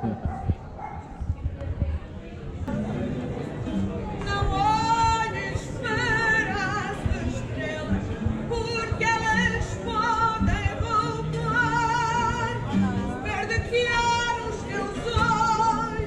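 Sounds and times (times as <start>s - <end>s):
woman singing with vibrato: 4.2s - 16.0s.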